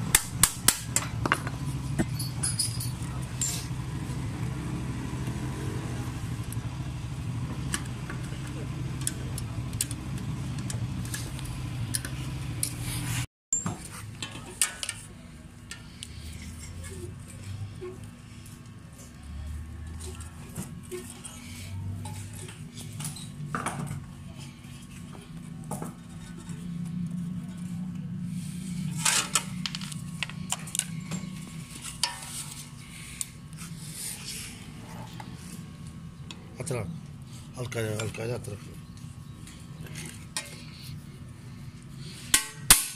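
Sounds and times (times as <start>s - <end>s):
low engine hum: 0.0s - 13.3s
steady low hum: 0.0s - 42.9s
metallic clicks and clinks: 2.0s - 3.7s.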